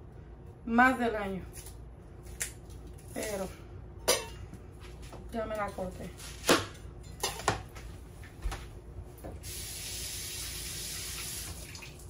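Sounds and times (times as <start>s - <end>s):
kitchen faucet running: 9.4s - 12.0s.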